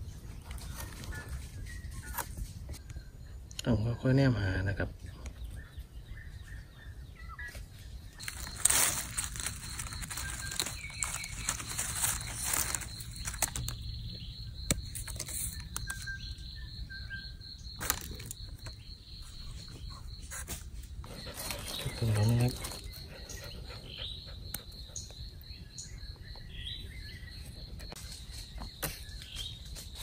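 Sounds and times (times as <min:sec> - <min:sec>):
bird chirps: 0:00.0 - 0:30.0
hands rustling in dry leaves: 0:08.2 - 0:13.9
twigs snapping: 0:08.2 - 0:13.9, 0:17.8 - 0:18.8.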